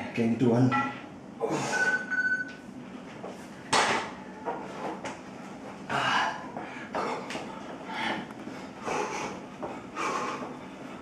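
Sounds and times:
quick breaths: 5.9 - 11.0.

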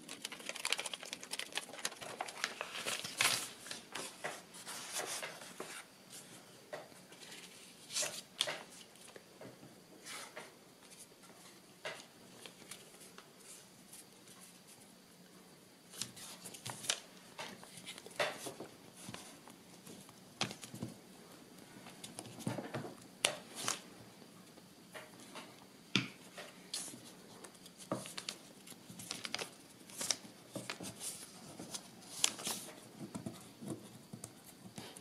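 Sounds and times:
paper rustling: 0.0 - 6.4, 15.9 - 20.9, 23.3 - 23.8, 26.7 - 33.9.

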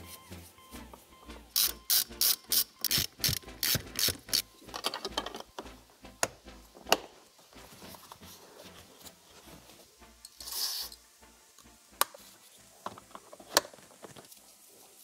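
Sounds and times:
sharp clicks of tools: 1.6 - 5.4.

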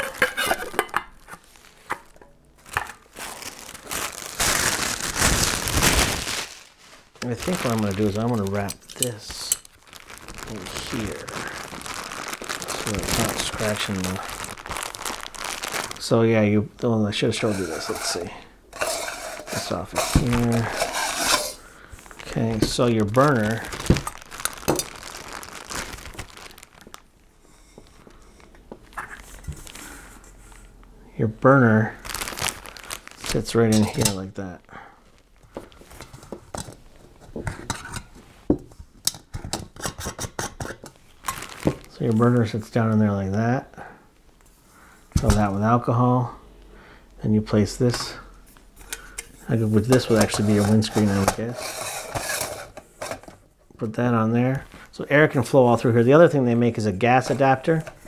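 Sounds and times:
plastic bag crinkling: 0.0 - 30.8, 31.6 - 38.3, 40.8 - 42.9, 47.8 - 53.3
cloth rustling: 1.4 - 27.1, 32.0 - 34.3, 41.0 - 42.6.

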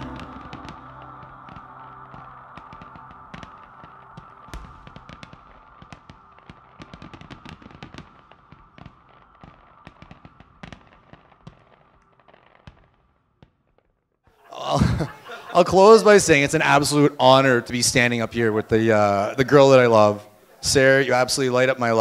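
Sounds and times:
fireworks popping and crackling: 0.0 - 14.1.

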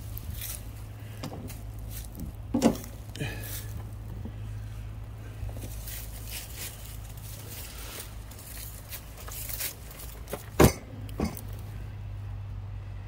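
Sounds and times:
rustling and scraping: 0.0 - 11.8
steady low hum: 0.0 - 13.0.

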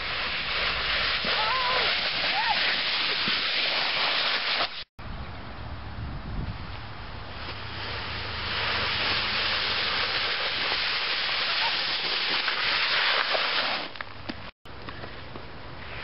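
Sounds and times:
board scraping over crusty snow: 0.0 - 4.9, 7.4 - 14.0.

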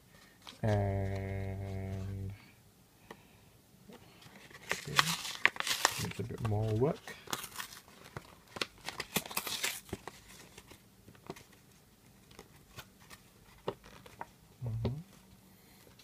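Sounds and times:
plastic blister crinkling: 4.2 - 14.3
cardboard tearing: 4.5 - 10.4.

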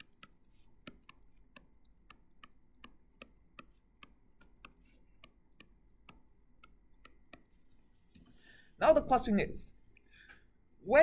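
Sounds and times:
stylus tapping tablet screen: 0.0 - 8.4.

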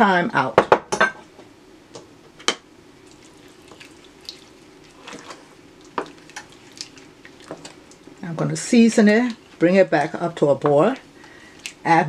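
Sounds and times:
sauce bubbling in a frying pan: 2.9 - 8.2
wooden spoon stirring: 3.1 - 11.8.

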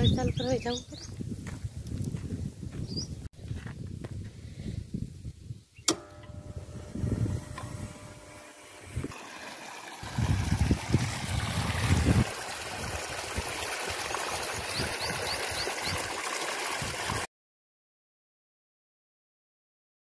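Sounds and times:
water gushing and splashing: 8.1 - 17.3.

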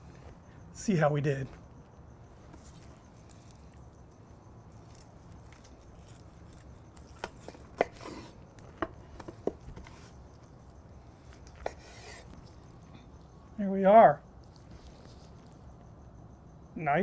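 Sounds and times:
knife carving meat: 4.8 - 10.2, 11.2 - 12.6.

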